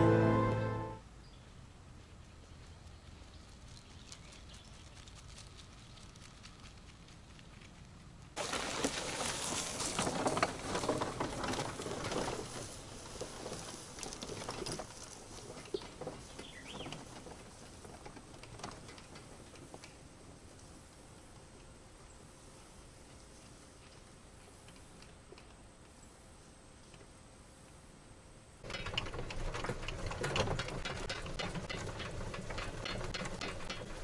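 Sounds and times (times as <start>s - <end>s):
electric golf cart driving over grass: 8.4s - 21.6s, 28.6s - 34.0s.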